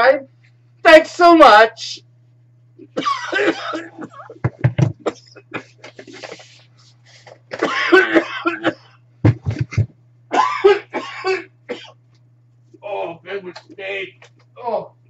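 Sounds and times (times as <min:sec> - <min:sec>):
faint low hum: 0:00.0 - 0:15.0
person coughing: 0:02.8 - 0:06.4, 0:07.5 - 0:12.0.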